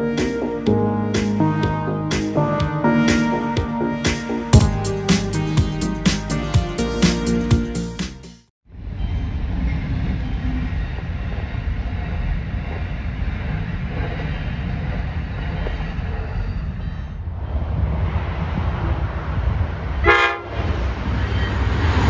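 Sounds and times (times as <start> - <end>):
train wheels rumbling on rails: 8.8 - 22.0.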